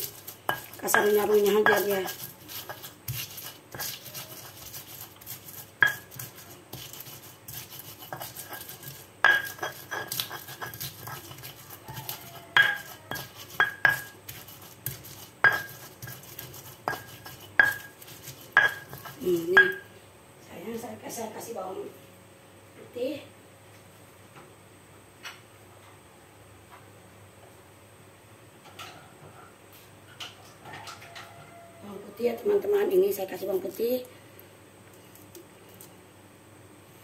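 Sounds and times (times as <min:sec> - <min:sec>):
pestle grinding in stone mortar: 0:00.0 - 0:19.9
stone-on-stone knocks: 0:12.6 - 0:14.1.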